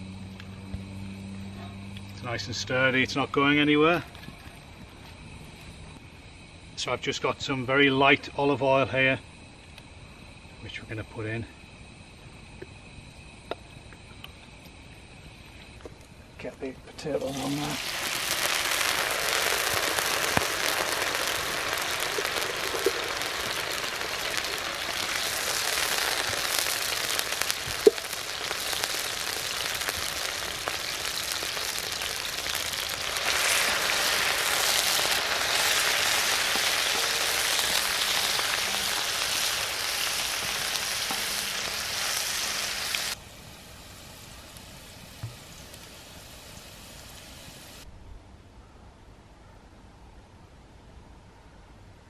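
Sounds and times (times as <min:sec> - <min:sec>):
potatoes sizzling in oil: 0:17.0 - 0:47.9.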